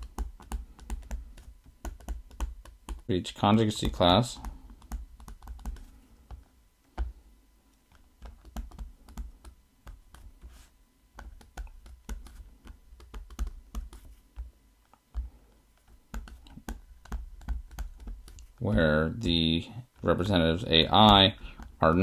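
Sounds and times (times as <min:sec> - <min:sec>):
stylus tapping on tablet screen: 0:00.0 - 0:03.1, 0:03.8 - 0:07.2, 0:07.9 - 0:18.6.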